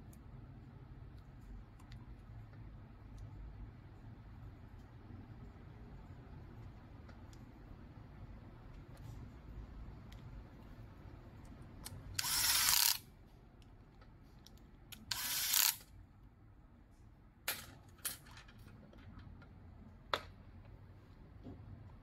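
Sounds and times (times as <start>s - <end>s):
electric screwdriver running: 12.2s - 13.0s, 15.1s - 15.8s.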